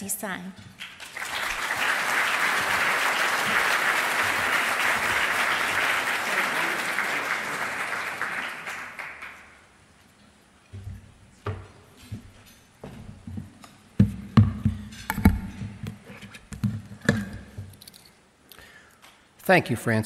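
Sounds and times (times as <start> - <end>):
audience applauding: 0.8 - 9.8.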